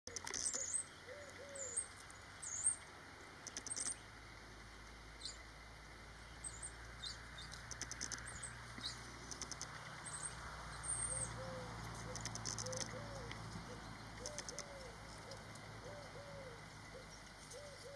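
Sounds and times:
birds chirping and trilling: 0.1 - 4.2, 6.2 - 17.9
low cooing: 1.0 - 1.8, 11.1 - 17.9.

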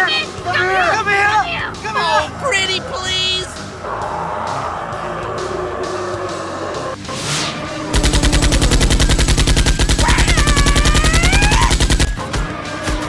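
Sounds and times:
rapid automatic gunfire: 8.0 - 12.2.

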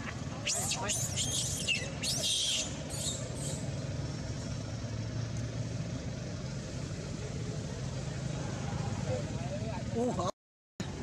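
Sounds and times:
monkeys screaming: 0.4 - 3.6.

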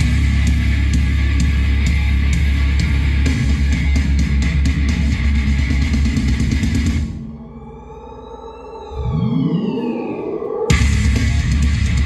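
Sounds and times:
rock music through loudspeaker: 0.0 - 7.2, 10.7 - 12.0.

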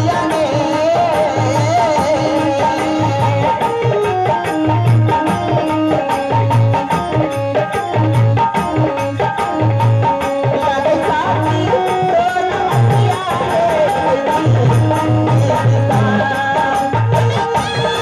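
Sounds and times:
hand drum beat: 0.0 - 18.0
instrumental folk melody: 0.0 - 18.0.

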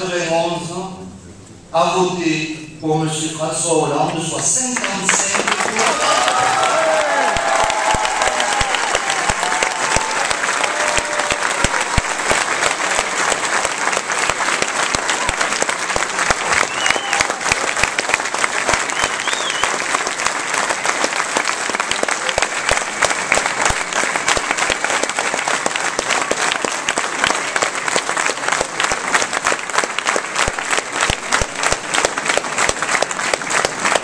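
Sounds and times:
crowd applauding: 4.1 - 34.0
close hand claps: 4.7 - 34.0.

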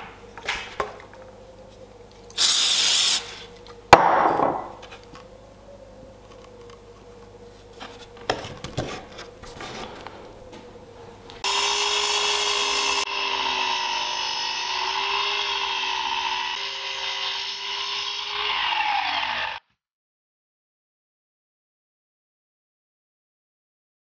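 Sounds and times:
mitre saw cutting wood: 11.4 - 19.6.

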